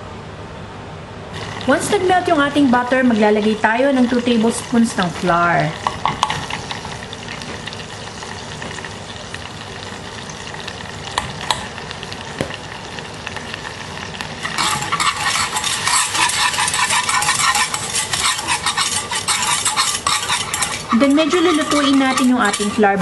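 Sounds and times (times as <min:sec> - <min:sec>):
whisk scraping a pan: 0:01.4 - 0:08.3, 0:14.3 - 0:23.0
butter sizzling in a saucepan: 0:01.4 - 0:23.0.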